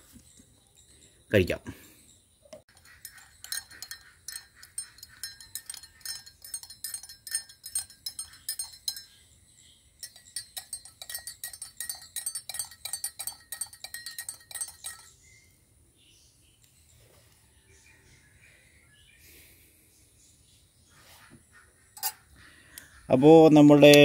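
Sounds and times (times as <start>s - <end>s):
teaspoon clinking in ceramic mug: 2.7s - 9.3s, 10.0s - 15.2s.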